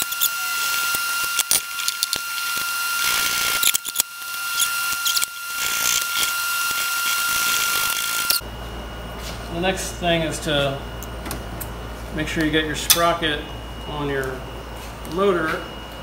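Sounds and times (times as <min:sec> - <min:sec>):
hands greasing motor screws: 0:00.0 - 0:08.4
faint high whine: 0:00.0 - 0:16.0.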